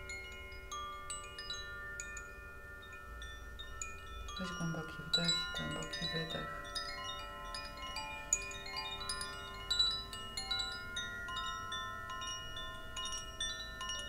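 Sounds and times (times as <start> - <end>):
chime tinkling: 0.0 - 14.0.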